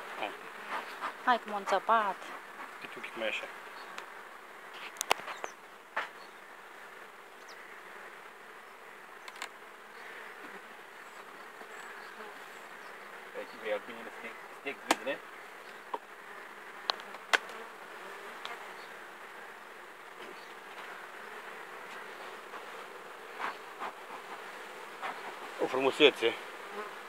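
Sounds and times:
honey bees buzzing: 0:00.0 - 0:27.0
knocks and clicks on hive: 0:14.8 - 0:15.1, 0:16.8 - 0:17.6.

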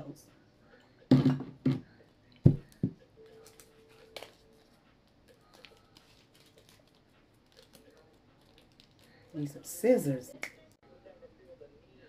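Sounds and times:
fingers rustling plastic packet: 0:03.3 - 0:09.5.

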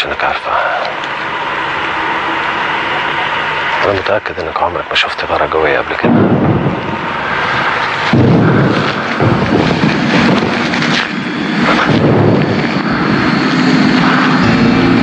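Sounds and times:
warplane engines: 0:00.0 - 0:15.0
bomb explosions: 0:05.8 - 0:15.0.

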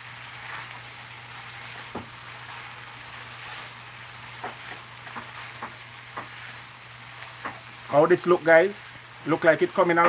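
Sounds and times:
food sizzling in metal pot: 0:00.0 - 0:10.0.

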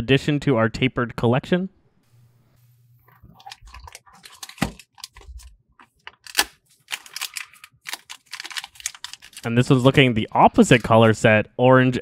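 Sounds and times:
plastic packet crinkling: 0:03.4 - 0:05.5, 0:06.2 - 0:11.0
knife slitting plastic packet: 0:03.5 - 0:05.4, 0:06.2 - 0:09.9.

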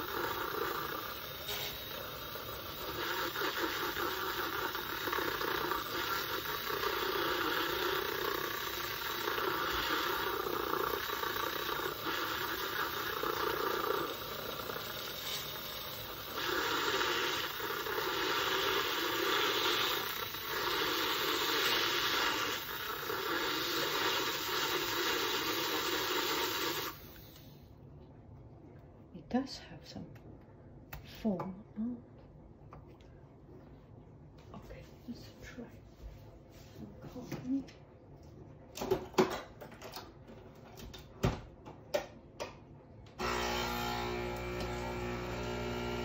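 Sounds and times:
milk frother whirring: 0:00.0 - 0:27.6, 0:43.2 - 0:46.0.

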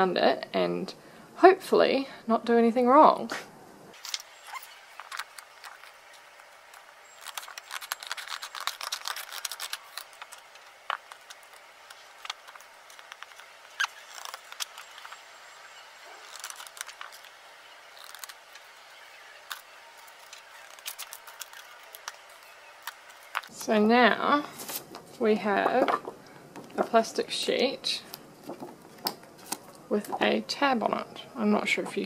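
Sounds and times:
scissors snipping plastic sheet: 0:07.1 - 0:15.2.

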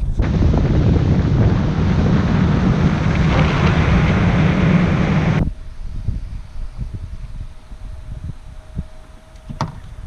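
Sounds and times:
wind buffeting microphone: 0:00.0 - 0:10.0
outboard motor humming: 0:00.2 - 0:05.4
water rushing: 0:00.2 - 0:05.4.

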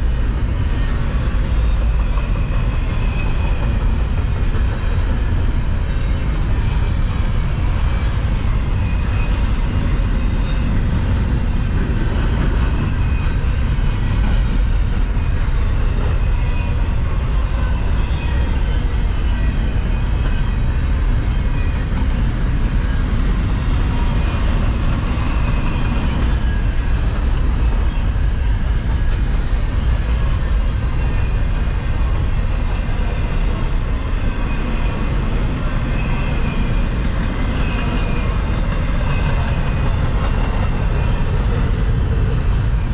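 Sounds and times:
freight train wheels rumbling: 0:00.0 - 0:42.9.

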